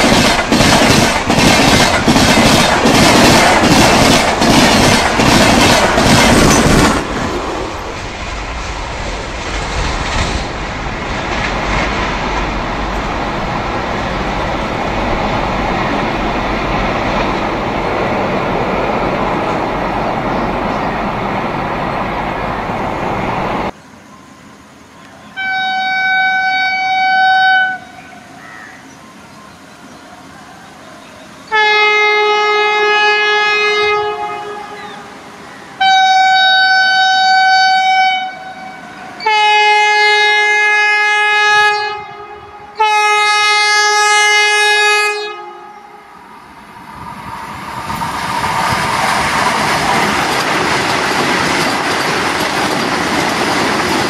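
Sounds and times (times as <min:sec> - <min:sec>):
wheels clattering over rail joints: 0:00.0 - 0:08.6, 0:48.0 - 0:54.0
train coaches rushing past: 0:00.0 - 0:54.0
locomotive horn blasts: 0:25.3 - 0:28.2, 0:31.5 - 0:35.1, 0:35.8 - 0:46.2.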